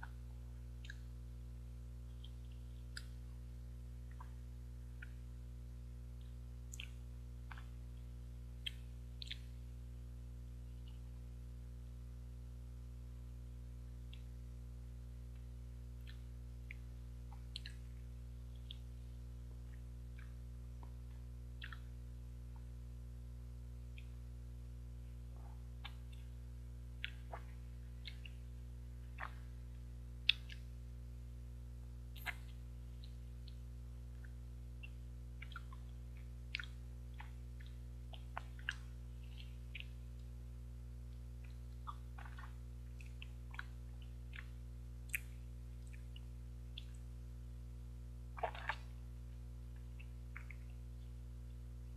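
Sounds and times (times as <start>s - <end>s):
low electrical hum: 0.0s - 51.9s
mouth eating sounds: 16.0s - 18.0s, 21.6s - 22.0s, 27.0s - 28.5s, 29.1s - 29.6s, 30.2s - 30.7s, 32.1s - 40.0s, 41.4s - 47.0s, 48.4s - 49.0s.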